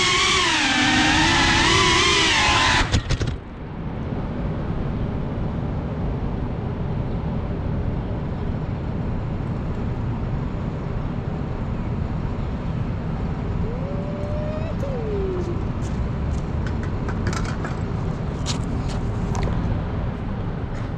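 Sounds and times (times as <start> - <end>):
drone motor whine: 0.0 - 3.4
low city background rumble: 0.0 - 20.9.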